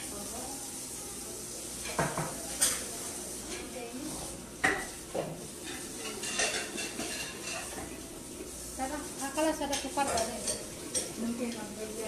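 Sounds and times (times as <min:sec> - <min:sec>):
dishes and cutlery clinking: 0:01.8 - 0:08.0, 0:09.3 - 0:12.0.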